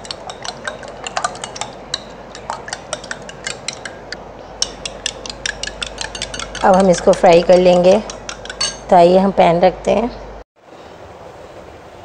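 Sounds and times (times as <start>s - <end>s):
spoon clinking against glass bowl: 0.0s - 9.0s.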